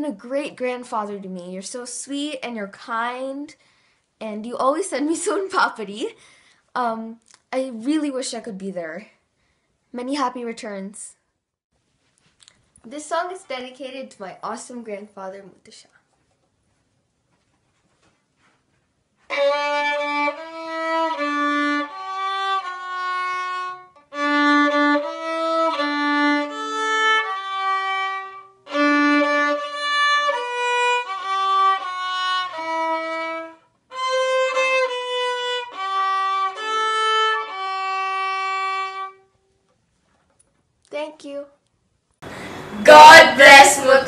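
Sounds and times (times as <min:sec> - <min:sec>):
solo violin melody: 0:19.3 - 0:39.3.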